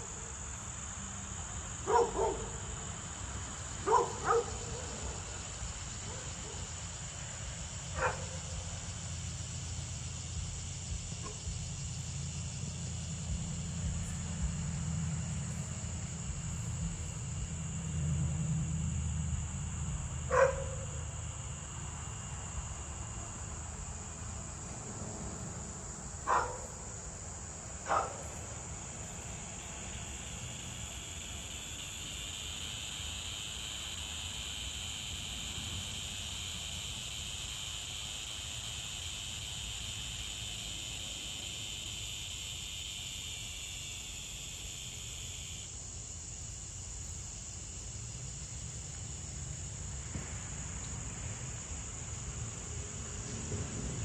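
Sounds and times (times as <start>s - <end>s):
crickets trilling: 0.0s - 54.0s
low insect chorus: 0.0s - 54.0s
dog barking: 1.9s - 2.6s, 3.8s - 5.3s, 8.0s - 8.4s, 20.3s - 21.0s, 26.3s - 26.7s, 27.9s - 28.3s.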